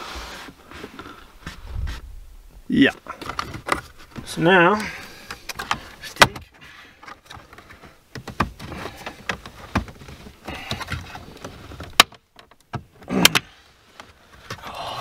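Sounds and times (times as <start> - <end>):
plastic trim clicking and creaking: 3.2 - 14.6.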